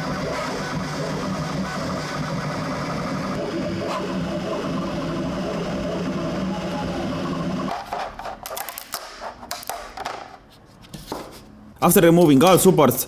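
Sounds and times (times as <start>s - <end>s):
printer motors whirring: 0.0s - 7.9s
plastic part snapping off plate: 8.4s - 10.3s.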